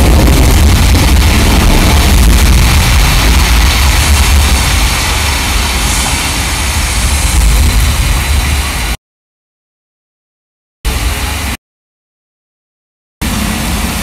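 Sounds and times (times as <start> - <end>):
deep rumble with hiss: 0.0 - 9.0.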